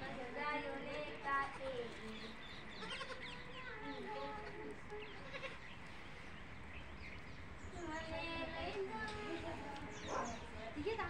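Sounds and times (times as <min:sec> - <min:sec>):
goat kids bleating: 0:02.7 - 0:05.8.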